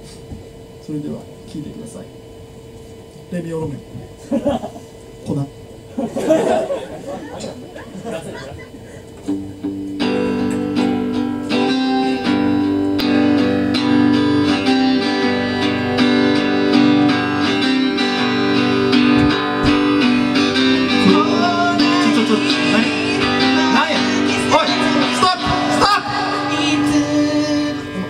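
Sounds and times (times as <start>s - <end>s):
strummed guitar chords: 6.0s - 28.0s
person singing: 20.6s - 28.0s.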